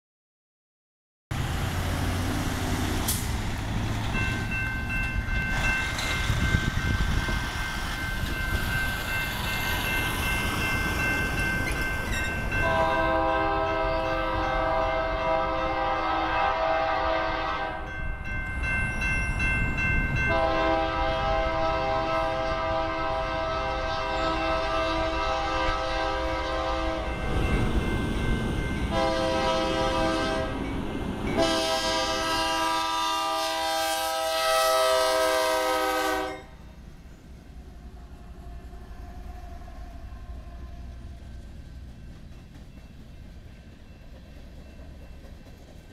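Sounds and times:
crossing warning bell: 3.8 - 36.7, 41.6 - 45.8
locomotive horn blasts: 12.6 - 17.9, 20.3 - 27.2, 28.9 - 30.6, 31.4 - 36.6.

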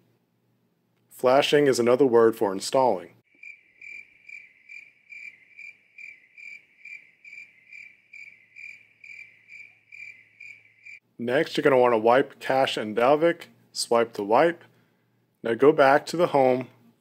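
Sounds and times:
cricket chirping: 3.3 - 11.0.

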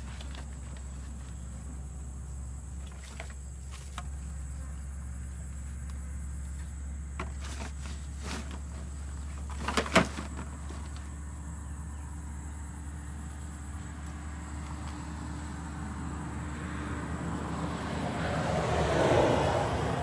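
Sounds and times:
eel traps knocking and clattering: 7.1 - 11.0.

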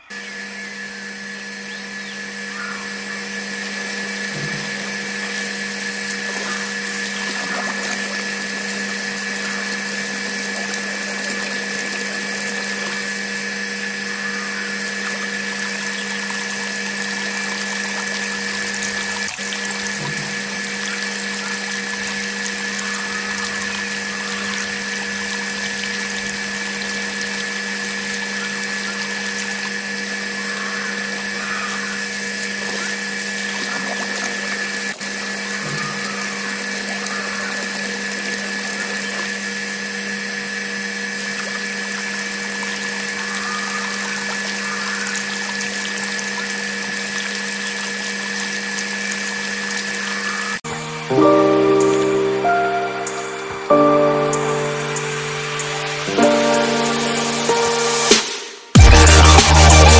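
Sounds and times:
small motor whine: 0.0 - 59.9
water pouring and splashing: 4.2 - 13.2, 15.0 - 30.3, 32.0 - 39.6, 41.2 - 50.2.

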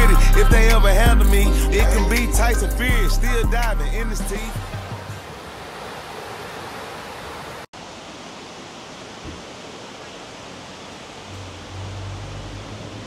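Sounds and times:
stream rushing over rocks: 4.4 - 13.0.

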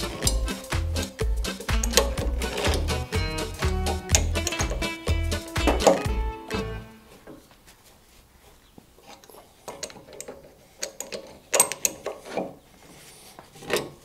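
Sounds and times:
ratchet wrench clicking: 3.6 - 6.0
metal tools clinking: 4.0 - 5.0, 9.0 - 12.5.

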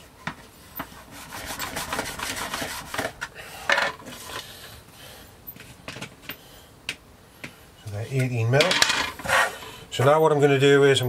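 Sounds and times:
rolling table scraping: 8.6 - 9.7.

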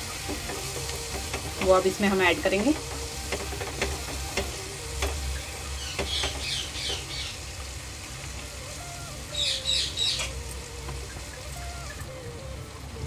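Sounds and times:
wooden spatula stirring frying food: 0.0 - 13.0
bird chirping: 5.7 - 7.4, 9.0 - 10.4.

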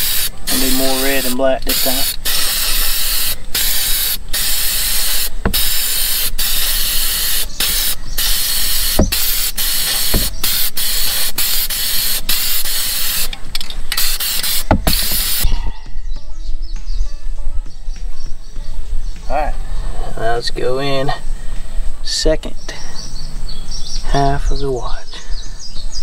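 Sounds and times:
spray paint can hissing: 0.0 - 15.5.

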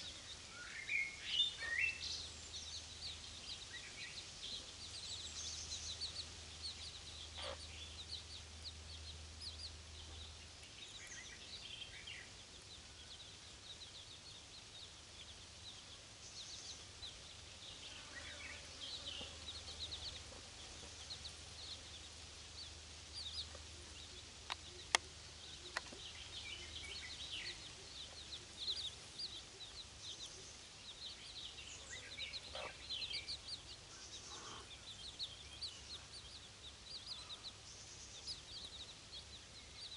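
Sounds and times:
chicks peeping: 0.0 - 39.9
hen clucking softly: 7.3 - 7.7, 32.4 - 32.9, 34.3 - 34.8.

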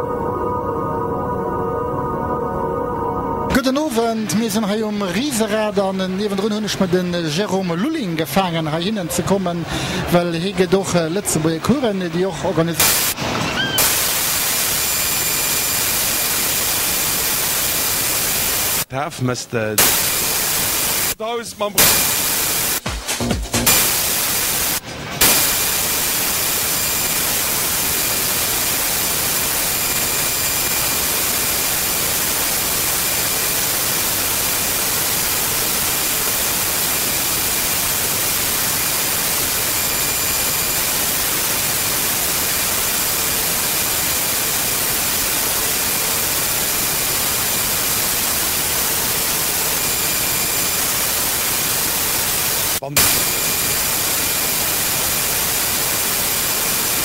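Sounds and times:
video static hiss: 3.5 - 57.0.

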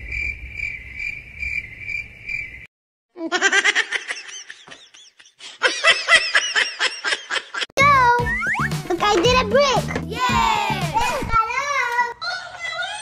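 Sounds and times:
cricket chirping trill: 0.0 - 2.7.

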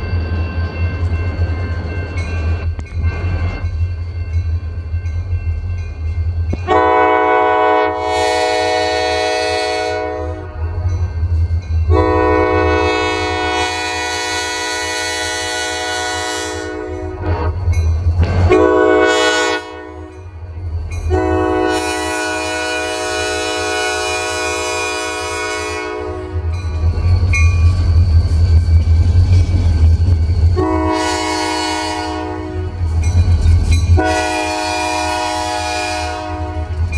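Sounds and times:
locomotive air horn blasts: 6.6 - 10.8, 11.9 - 17.6, 18.2 - 20.2, 21.1 - 26.5, 30.6 - 32.9, 34.0 - 36.8.

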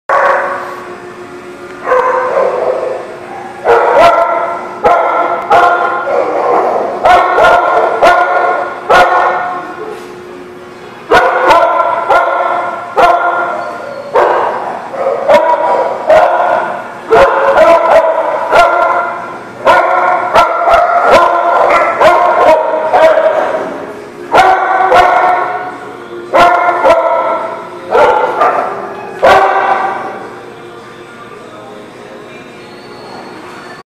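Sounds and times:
dogs barking in echoing room: 0.1 - 30.4.

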